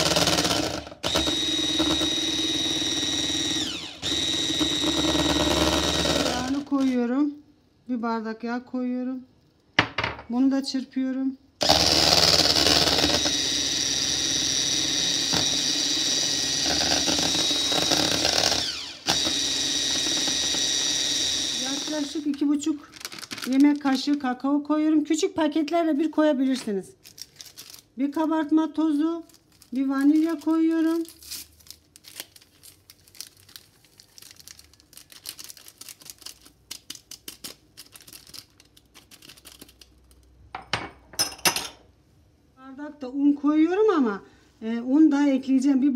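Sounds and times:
electric hand mixer whirring: 0.0s - 7.0s, 11.6s - 22.3s
paper sachets tearing and crinkling: 22.0s - 24.4s, 27.0s - 28.3s, 29.1s - 40.3s.

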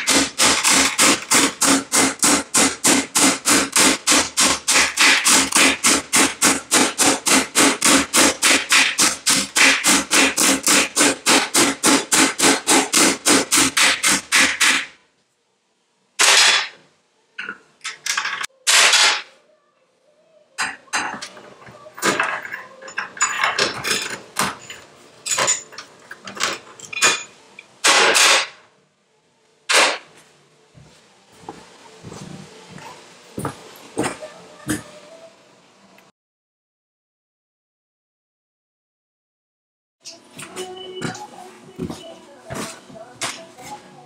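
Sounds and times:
hammering on metal sheet: 0.0s - 15.0s, 16.2s - 16.8s, 27.8s - 28.6s.

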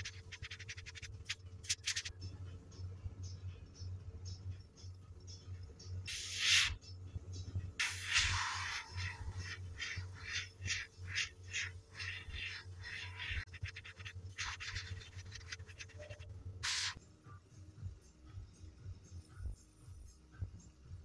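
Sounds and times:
steady low hum: 0.0s - 21.0s
airbrush spraying hissing bursts: 6.1s - 6.8s, 7.8s - 14.7s, 16.6s - 17.0s.

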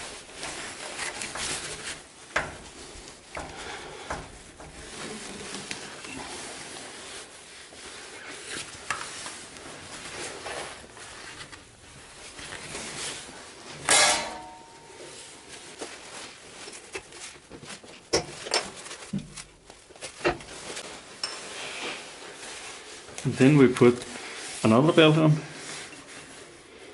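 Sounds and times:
loud metal clank: 13.8s - 14.9s.

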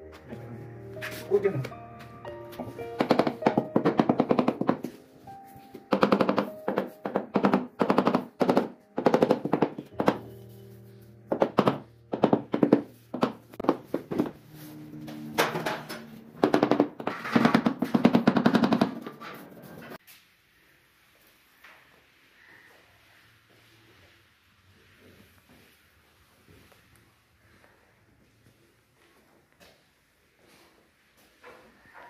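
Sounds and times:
faint background music: 0.0s - 17.0s
tiles being tapped with hand tool: 2.5s - 10.3s, 11.3s - 14.4s, 16.4s - 20.0s.

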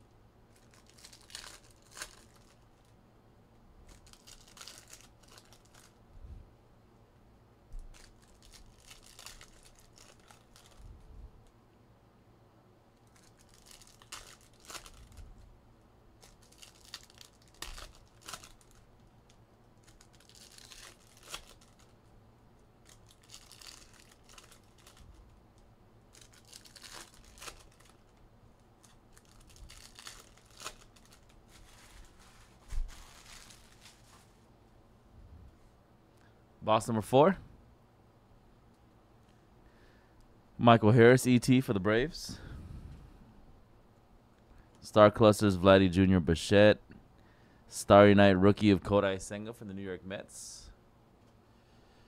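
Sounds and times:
card pack wrappers tearing and crinkling: 0.5s - 2.9s, 3.8s - 6.0s, 7.8s - 10.8s, 13.0s - 15.2s, 16.2s - 22.0s, 22.8s - 34.3s.

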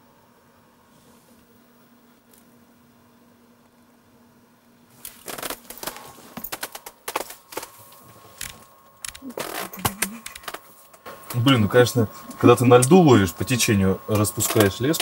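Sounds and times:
clicking and rustling of hands: 5.0s - 11.5s.

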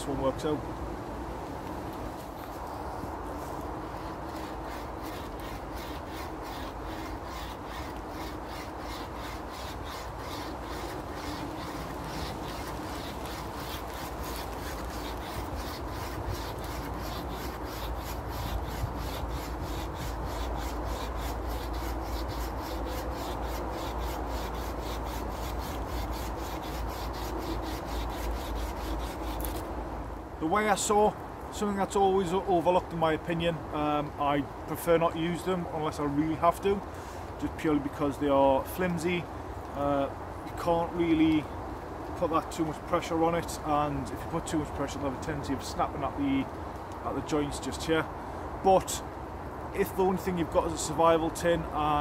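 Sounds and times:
wire saw rasping through wood: 3.8s - 29.6s.

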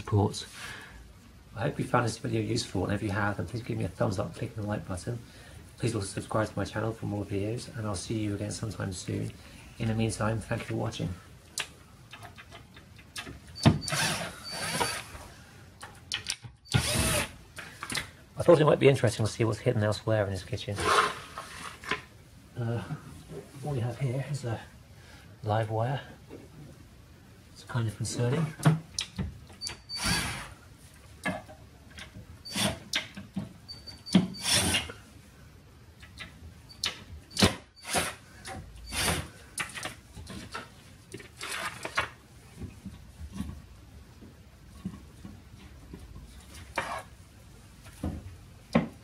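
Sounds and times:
scraping and rustling: 20.7s - 22.1s
wooden board scraping: 20.8s - 22.1s, 44.8s - 47.1s.

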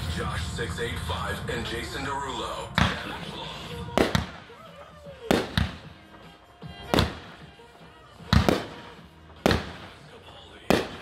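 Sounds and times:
fireworks bangs: 2.7s - 11.0s.

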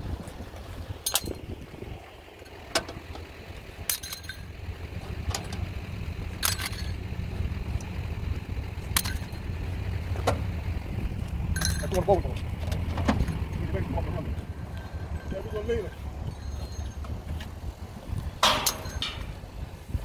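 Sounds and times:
low rumble: 0.0s - 20.0s
metallic clinks of strap hardware: 6.4s - 7.0s.

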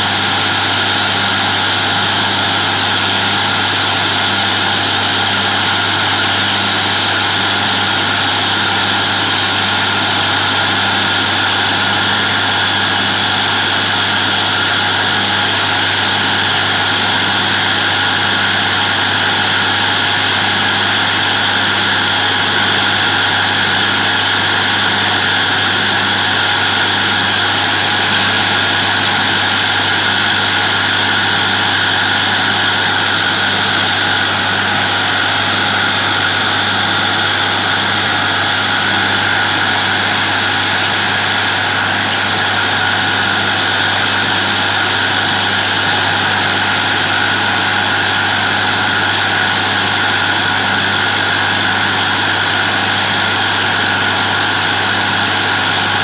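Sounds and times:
drilling rig engine and compressor: 0.0s - 56.0s.

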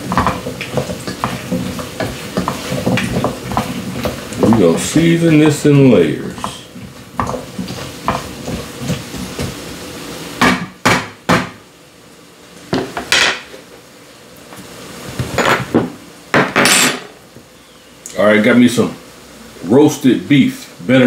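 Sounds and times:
kitchen utensils clattering: 15.3s - 15.8s, 16.4s - 17.2s.

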